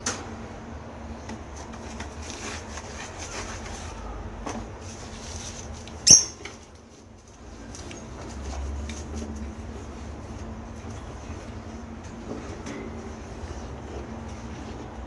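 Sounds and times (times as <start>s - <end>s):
bird chicks squeaking: 6.0s - 6.4s.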